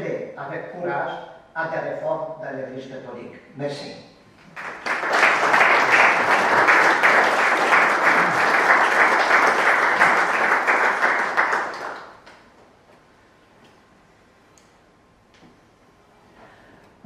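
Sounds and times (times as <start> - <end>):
audience applauding: 4.5 - 12.4.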